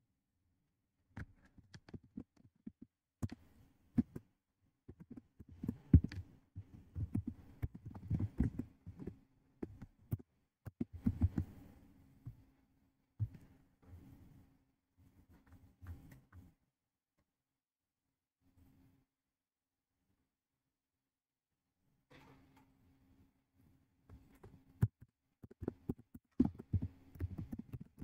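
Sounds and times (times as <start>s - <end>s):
keyboard typing: 4.9s - 11.5s, 24.3s - 28.0s.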